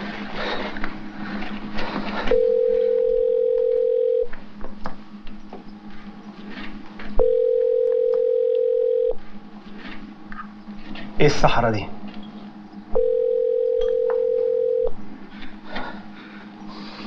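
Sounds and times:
telephone ringback tone: 2.3 - 4.3, 7.2 - 9.2, 13.0 - 14.9.

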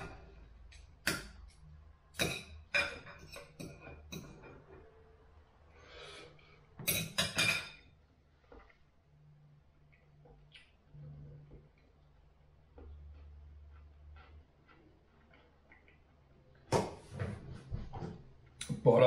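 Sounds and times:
cutlery clinking on a plate: 2.2 - 4.6, 6.8 - 7.9.

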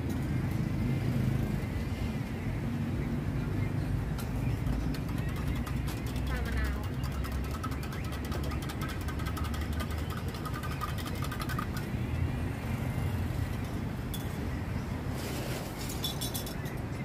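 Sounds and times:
road traffic rumble: 0.0 - 17.0
rapid ticking rattle: 4.6 - 12.0.

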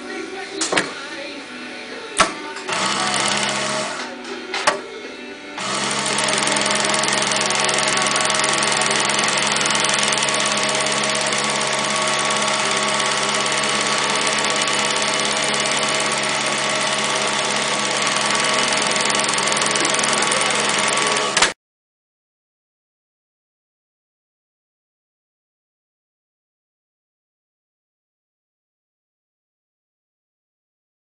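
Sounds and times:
sewing machine stitching leather: 2.7 - 4.1, 5.6 - 21.6.

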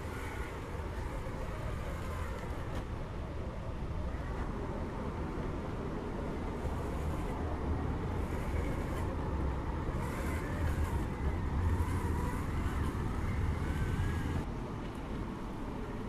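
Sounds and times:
electric motor and gearbox whining: 0.0 - 2.9, 6.6 - 7.4, 8.0 - 14.5
wind: 0.0 - 16.0.

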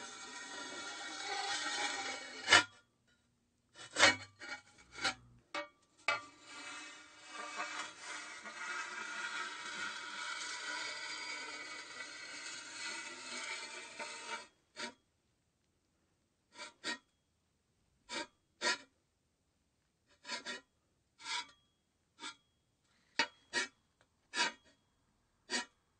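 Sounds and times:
rasping scraping slide: 0.0 - 2.8, 3.8 - 5.3, 6.0 - 15.0, 20.2 - 20.6, 23.2 - 23.8, 24.4 - 24.6, 25.5 - 25.8.

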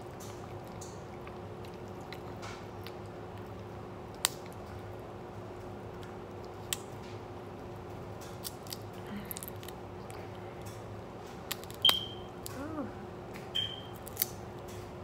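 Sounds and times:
low steady hum: 0.0 - 15.0
crab shells cracking: 0.2 - 4.7, 8.2 - 12.6, 13.9 - 14.7.

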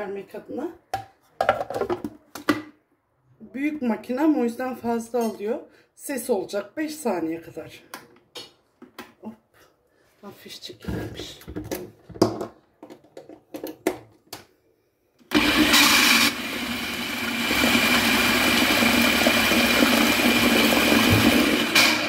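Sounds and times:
food processor motor running: 15.3 - 22.0.

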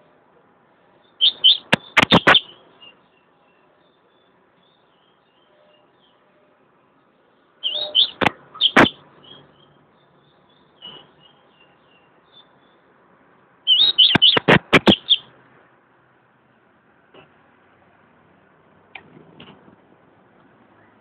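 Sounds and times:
bird chirping: 0.9 - 13.0, 13.6 - 15.3
sharp clicks in cage: 18.9 - 19.6.

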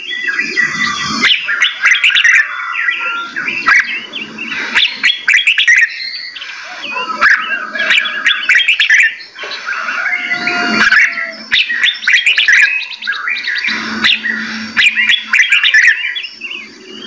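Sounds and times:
songbirds chirping: 0.0 - 17.0.

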